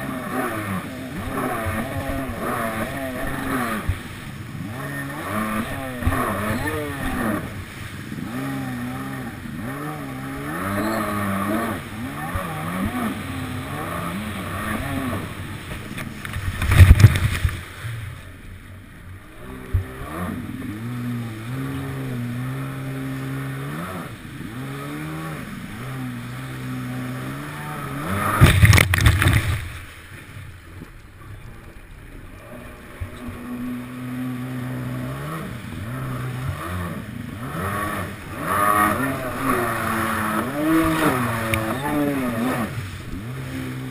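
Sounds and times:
jet ski engine revving: 0.0 - 43.9
water splash bursts: 24.9 - 30.3.

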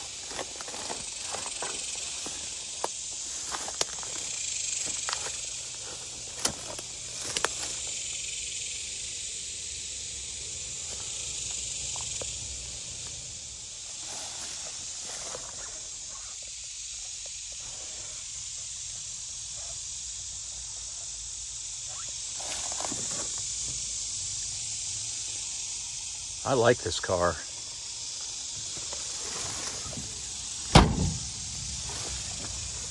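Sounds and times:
steps in tall grass: 0.0 - 8.1, 12.9 - 15.9, 27.6 - 30.6, 31.3 - 32.9
insect chorus hissing: 0.0 - 32.9.

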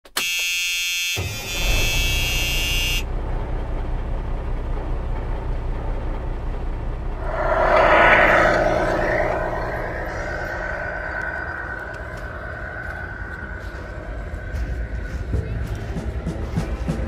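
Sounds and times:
truck horn blast: 0.2 - 3.1
diesel truck engine rumbling: 3.0 - 7.3.

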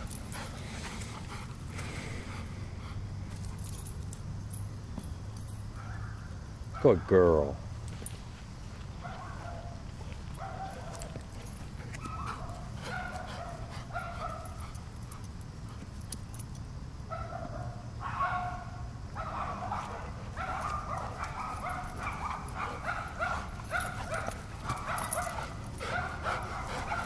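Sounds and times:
dog barking and yipping: 9.0 - 9.8, 10.4 - 14.9, 17.1 - 27.0.

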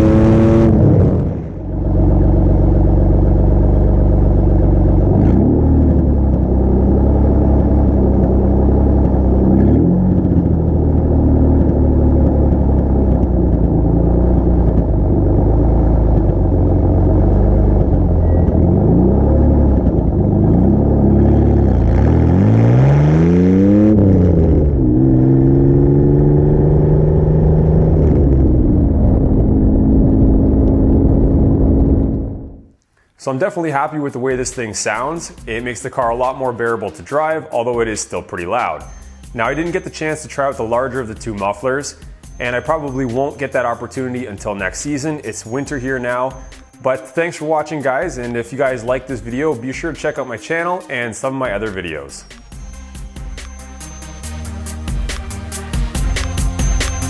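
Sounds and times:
car engine exhaust revving: 0.0 - 32.8.

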